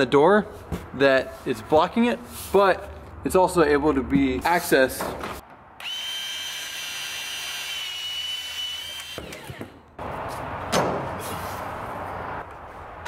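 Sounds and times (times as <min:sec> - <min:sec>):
pipe cutter motor whine: 0:05.8 - 0:09.6.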